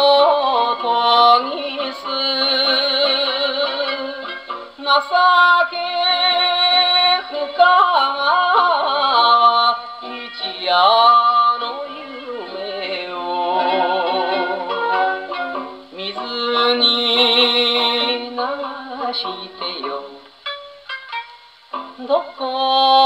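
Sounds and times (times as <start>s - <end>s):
man singing with vibrato: 0.0s - 20.5s, 21.7s - 23.0s.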